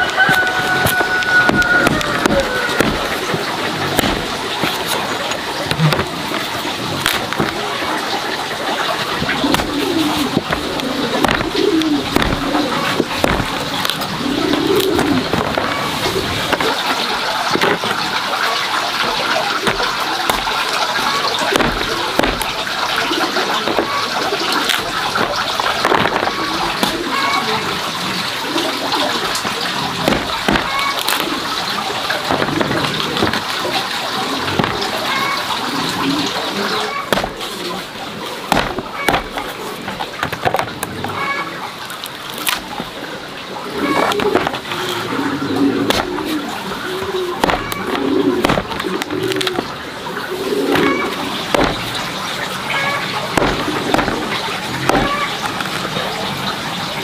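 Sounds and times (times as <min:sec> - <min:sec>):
chickens clucking: 0:00.0 - 0:57.0
cleaver chopping pumpkin on wood: 0:00.3 - 0:04.9, 0:09.4 - 0:10.6, 0:11.2 - 0:14.1, 0:19.6 - 0:20.7, 0:21.5 - 0:22.7, 0:29.3 - 0:31.2, 0:37.1 - 0:37.5, 0:38.5 - 0:40.7, 0:45.9 - 0:46.3, 0:47.4 - 0:49.7, 0:50.7 - 0:52.1, 0:53.4 - 0:55.4
knife knocking on chopping board: 0:38.5 - 0:39.4.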